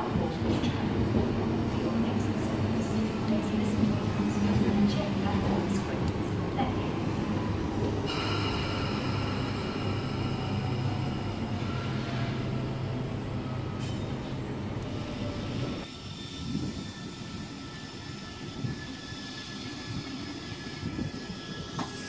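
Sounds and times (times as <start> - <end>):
electric train running hum: 0.0 - 22.0
high-pitched train tones: 7.8 - 14.3.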